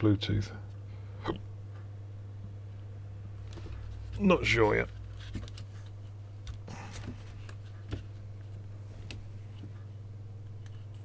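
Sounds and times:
steady low hum: 0.0s - 11.0s
clicks and rustles of handling parts: 3.4s - 9.8s.

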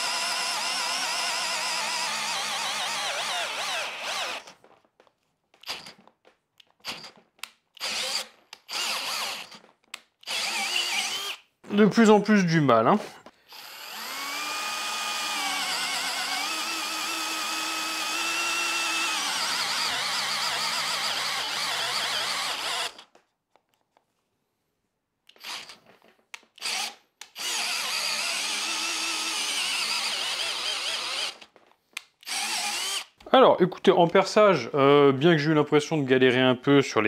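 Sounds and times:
cordless drill boring into wood: 0.0s - 4.7s, 6.8s - 11.5s, 13.4s - 23.2s, 25.3s - 31.5s, 32.2s - 33.2s.

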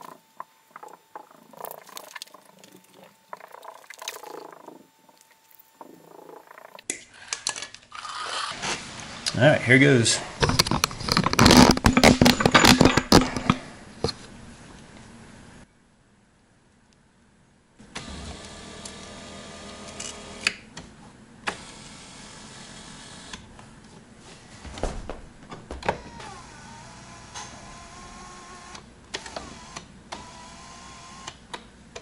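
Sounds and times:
clicks and knocks: 10.4s - 14.2s
electric seat motors whining: 17.9s - 20.5s, 25.8s - 31.4s.

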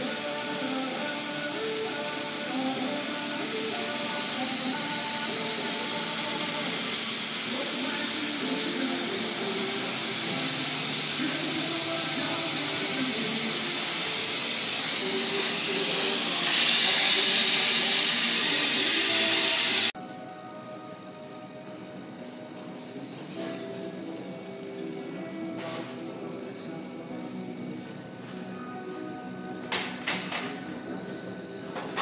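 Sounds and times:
laser cutter air and fans hissing: 0.0s - 20.0s.

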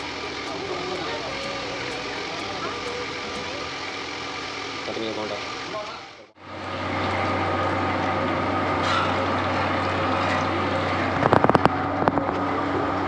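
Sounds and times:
low hum: 0.0s - 5.7s
food sizzling in hot oil: 0.0s - 11.8s.

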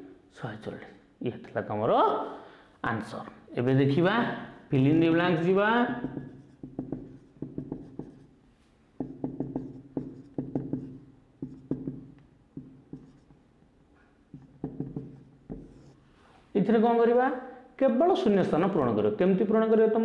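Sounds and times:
marker writing on whiteboard: 4.8s - 8.4s, 9.0s - 16.0s.

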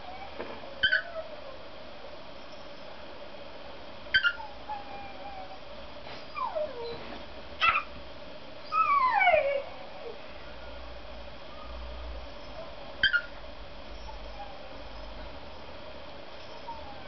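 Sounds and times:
cockatiel chirps: 13.0s - 13.3s.

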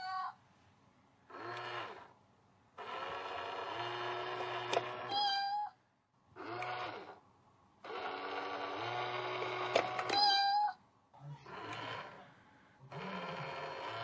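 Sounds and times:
toy motor hum: 1.3s - 2.1s, 2.8s - 5.4s, 6.4s - 7.2s, 7.8s - 10.3s, 11.4s - 12.2s, 12.8s - 14.0s
electronic meow: 5.1s - 5.8s, 10.1s - 10.8s.

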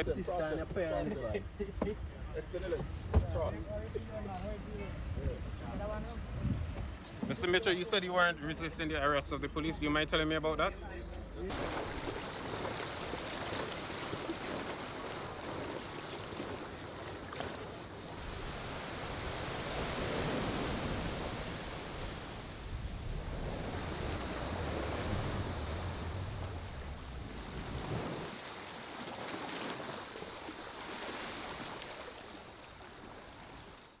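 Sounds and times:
wind on microphone: 4.8s - 7.4s, 18.2s - 28.3s
water lapping: 11.4s - 34.0s.

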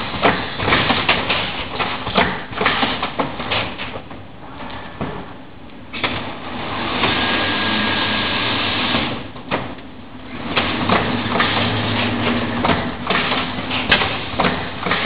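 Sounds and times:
sharp clicks and knocks: 0.1s - 4.2s, 10.5s - 15.0s.

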